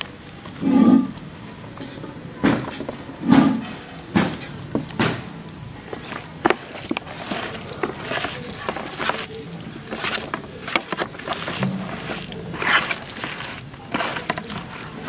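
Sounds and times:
hand mixing food in paste: 0:04.5 - 0:15.0.

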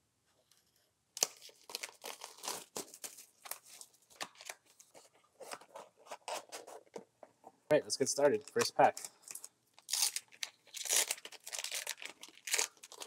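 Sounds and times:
plastic shrink wrap crinkling: 0:01.2 - 0:06.5, 0:08.3 - 0:13.0.

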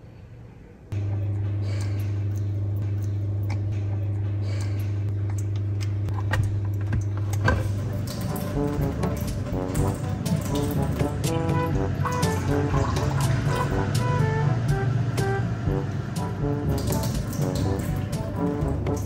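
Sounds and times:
low electrical hum: 0:00.0 - 0:19.0
water pouring into a pot: 0:07.5 - 0:14.4, 0:15.9 - 0:19.0.

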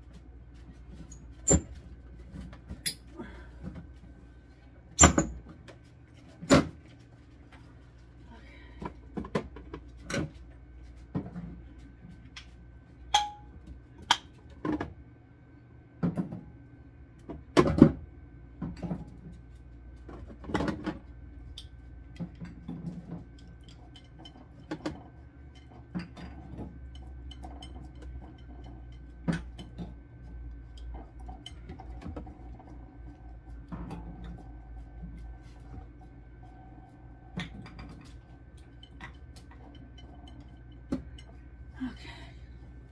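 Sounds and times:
faint steady hum: 0:00.0 - 0:42.9
glass jars clinking: 0:13.2 - 0:13.5.

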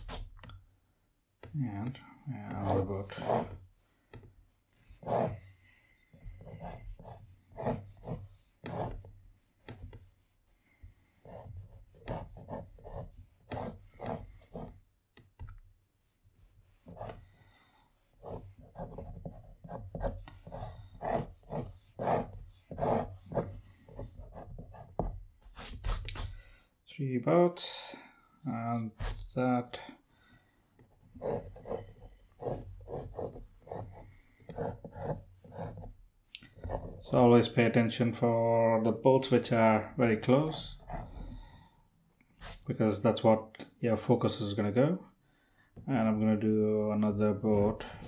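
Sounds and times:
pencil scratching on paper: 0:00.0 - 0:00.3, 0:02.5 - 0:14.8, 0:16.2 - 0:26.4, 0:30.8 - 0:37.2, 0:40.5 - 0:41.4, 0:42.4 - 0:42.6.

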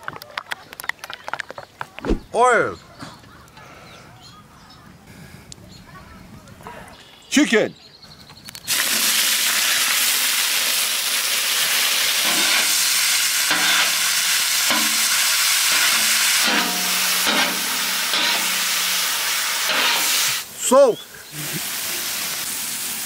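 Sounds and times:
chicken sizzling on hot griddle: 0:08.7 - 0:20.5, 0:21.3 - 0:23.0.

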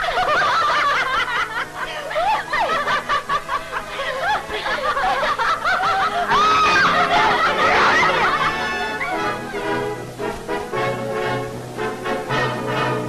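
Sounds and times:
people laughing and giggling: 0:00.0 - 0:10.4
music: 0:00.0 - 0:13.0.

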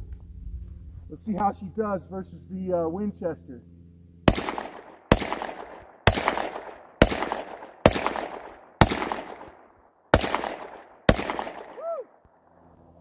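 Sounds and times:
shotgun shots: 0:04.2 - 0:11.9
gunshot echo: 0:04.3 - 0:11.9.

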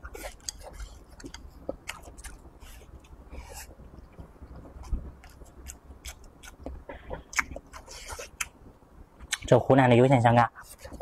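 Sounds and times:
close-up chewing with wet mouth clicks: 0:00.0 - 0:03.2, 0:04.0 - 0:08.6.

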